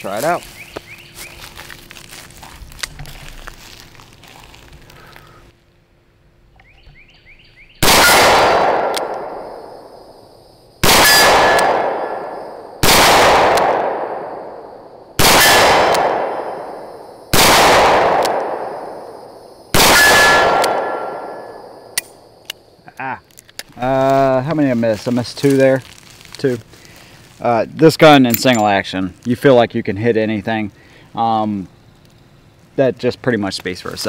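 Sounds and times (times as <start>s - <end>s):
revolver shots echoing: 10.8s - 14.6s, 15.2s - 16.8s.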